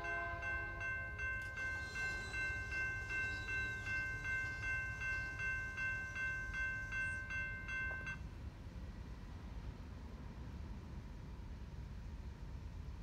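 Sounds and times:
railroad crossing bell ringing: 0.0s - 8.3s.

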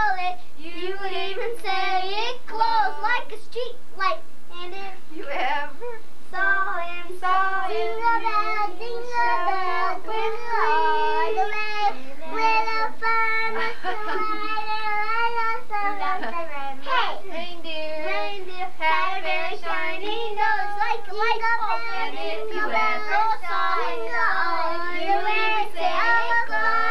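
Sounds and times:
children singing together: 6.4s - 26.9s.

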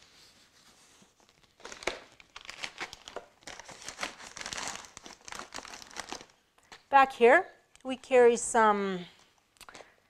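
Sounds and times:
plastic packaging crinkling: 1.0s - 6.8s.

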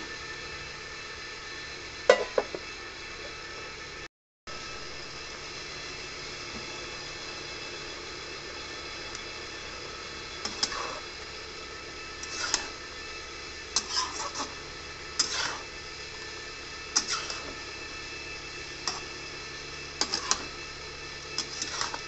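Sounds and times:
spatula scraping metal wok: 10.4s - 11.1s, 12.1s - 12.9s, 13.6s - 15.9s, 16.9s - 17.9s, 18.8s - 19.2s, 20.0s - 20.6s, 21.3s - 22.0s
hiss from pan: 13.8s - 16.2s, 16.9s - 19.3s, 21.4s - 22.0s.

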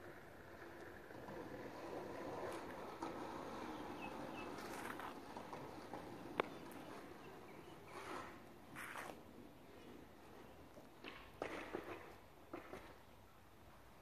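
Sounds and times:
shoe scuffs on asphalt: 2.4s - 10.0s.

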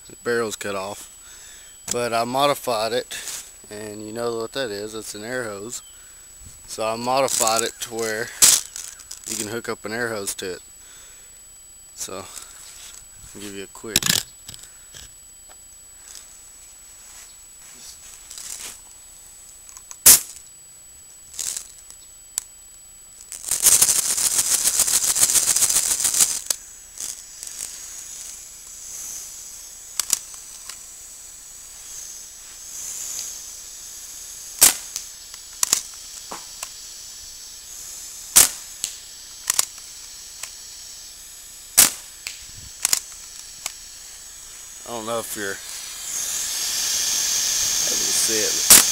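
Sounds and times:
air gun pops: 8.4s - 9.4s, 19.7s - 20.4s, 23.2s - 31.0s, 31.6s - 48.9s
rushing hiss of air: 23.3s - 48.9s.

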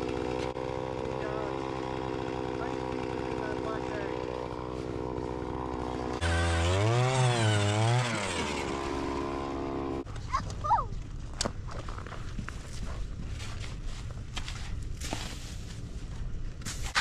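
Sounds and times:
small engine revving: 0.0s - 10.1s.

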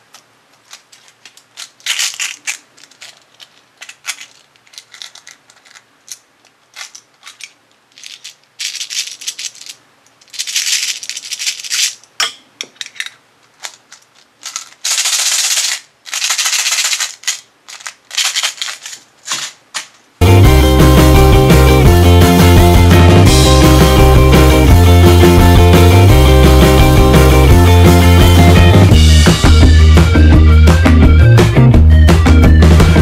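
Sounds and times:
plastic wrapping crinkling: 0.0s - 12.1s, 12.7s - 20.2s
loud music: 20.2s - 33.0s.

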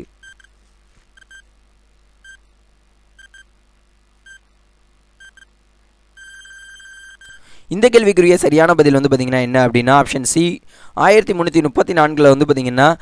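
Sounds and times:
long held beep: 6.2s - 7.5s.

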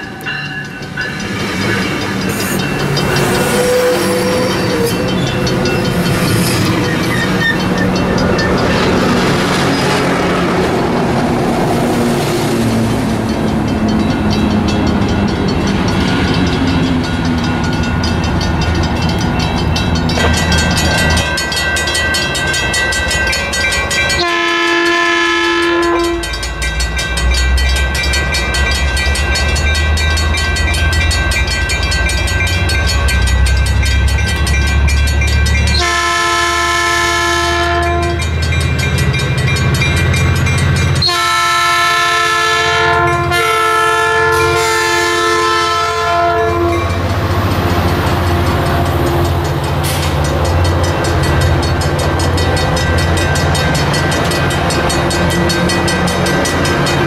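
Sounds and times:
crossing bell ringing: 0.0s - 57.0s
diesel locomotive rumble: 0.0s - 57.0s
train wheels clattering on rails: 0.0s - 57.0s
train horn blast: 3.2s - 5.0s, 24.2s - 26.4s, 35.8s - 38.4s, 41.0s - 47.0s.

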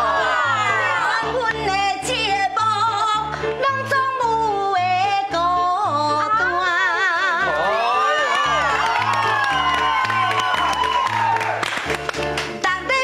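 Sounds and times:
woman singing with vibrato: 1.0s - 7.7s, 12.6s - 13.0s.

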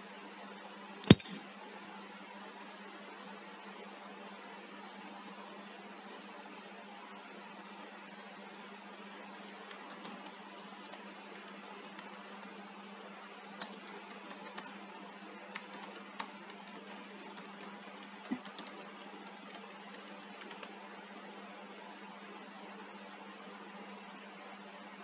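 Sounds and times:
keyboard typing: 1.1s - 1.4s, 9.7s - 12.4s, 13.6s - 14.7s, 15.5s - 20.7s.

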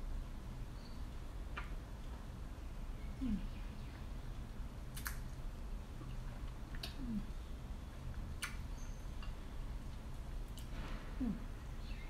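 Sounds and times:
woman humming: 3.2s - 3.5s, 6.9s - 7.3s, 11.2s - 11.5s.

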